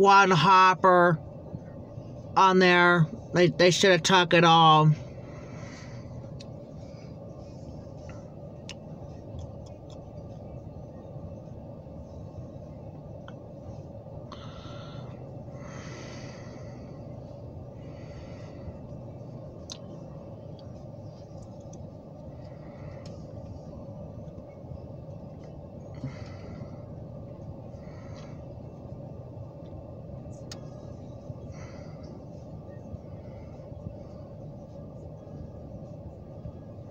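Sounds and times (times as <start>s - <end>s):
freight train rumbling: 0.0s - 36.9s
soft breaths: 5.0s - 9.3s, 13.6s - 36.3s.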